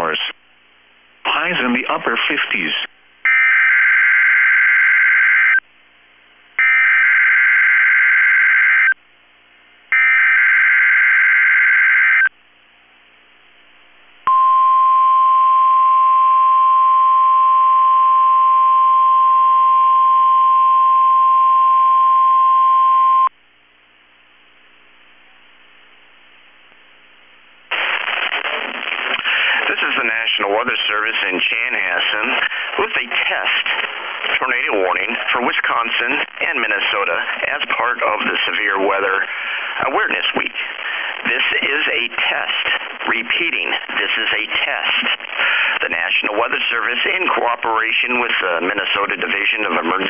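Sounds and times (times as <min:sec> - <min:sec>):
steady warning alarm tone: 0:03.3 - 0:05.6, 0:06.6 - 0:09.0, 0:09.9 - 0:12.3.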